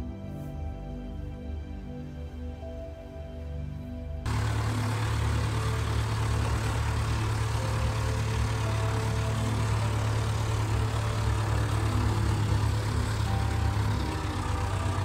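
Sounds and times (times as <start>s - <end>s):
tractor diesel engine running: 4.2s - 15.0s.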